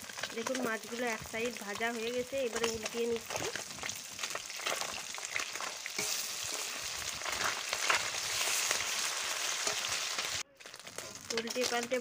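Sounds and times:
fish sizzling in oil: 0.0 - 12.0
metal spatula scraping pan: 4.6 - 12.0.

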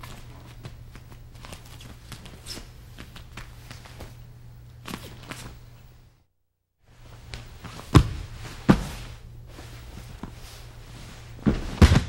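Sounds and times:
steady low hum: 0.0 - 12.0
people landing on training mat: 7.3 - 9.2, 11.4 - 12.0.

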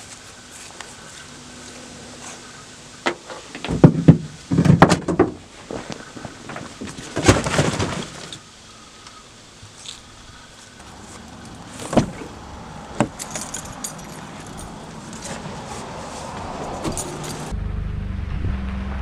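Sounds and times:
gear clattering in truck bed: 3.0 - 8.4, 10.8 - 17.5.

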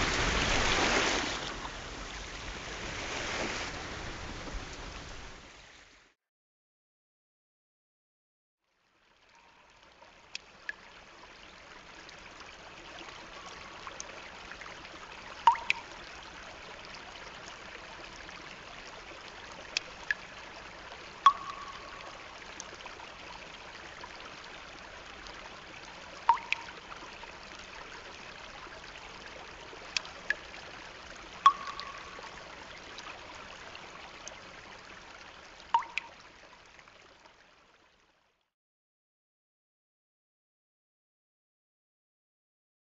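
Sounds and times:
trickling stream: 0.0 - 6.2, 8.6 - 38.5
short sharp plinks: 15.5 - 15.9, 21.3 - 22.2, 26.3 - 26.8, 31.4 - 32.4, 35.7 - 36.2.

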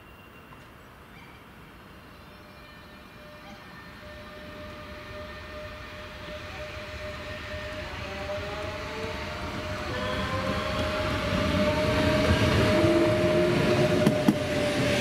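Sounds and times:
electric train rumble: 1.6 - 15.0.

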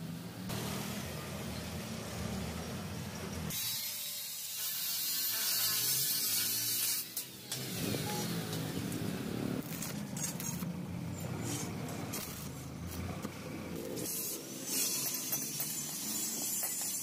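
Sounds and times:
engine running: 7.4 - 14.6.

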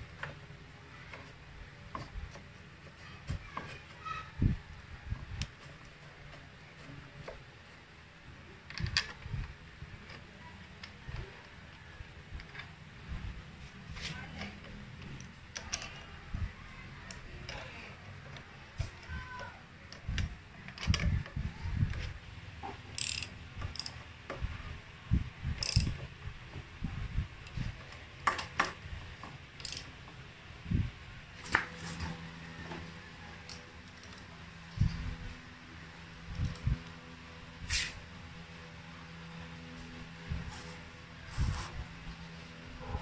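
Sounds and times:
socket wrench clicking on bolts: 22.9 - 24.0, 25.6 - 26.0, 29.5 - 29.9.

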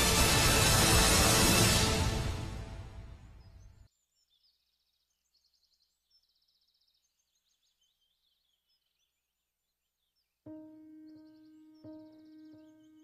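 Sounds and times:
birds chirping and trilling: 3.0 - 13.0.

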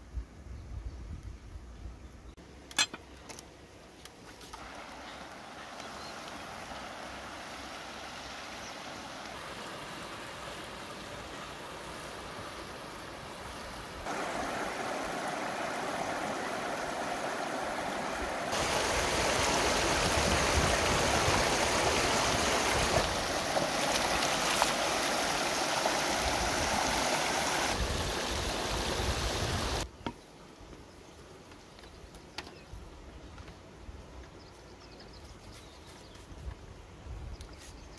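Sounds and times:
river rushing: 4.6 - 29.8
water splashing: 4.6 - 29.8.

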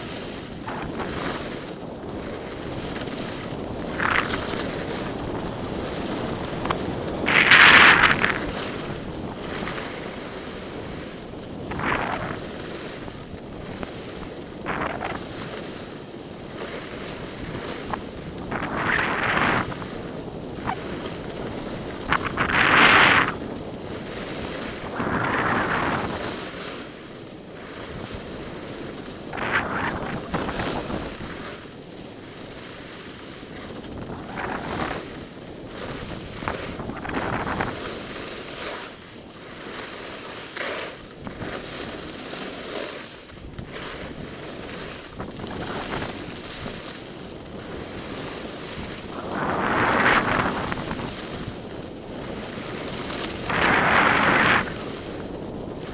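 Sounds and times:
wind rushing over microphone: 0.0 - 39.9, 41.0 - 55.9
skis hissing on snow: 0.0 - 55.9.

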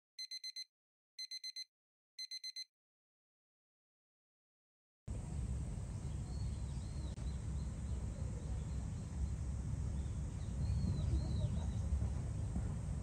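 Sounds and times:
low outdoor rumble: 5.1 - 13.0
small bird chirping: 5.8 - 12.5.

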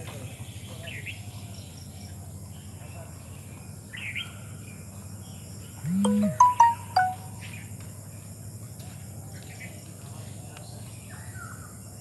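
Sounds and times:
short beeping tones: 5.8 - 7.4.

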